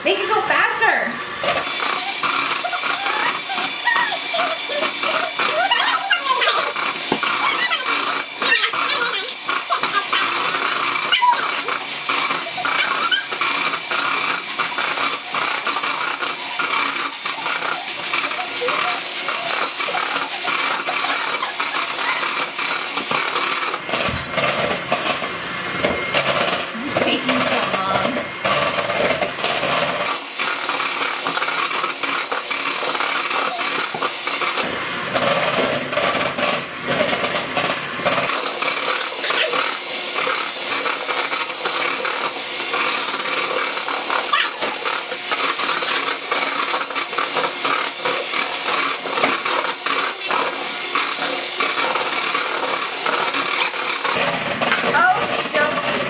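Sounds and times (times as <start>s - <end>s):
electric hand mixer running: 0.0s - 56.0s
beaters clattering against bowl: 1.4s - 25.3s, 26.2s - 56.0s.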